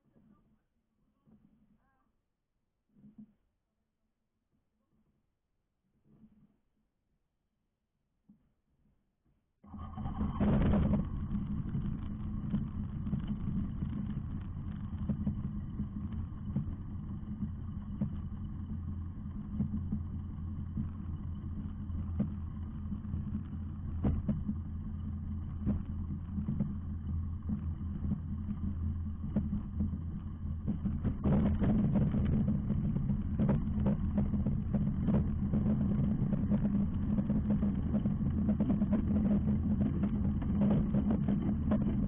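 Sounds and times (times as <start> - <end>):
engine and propeller idling: 9.7 - 42.0.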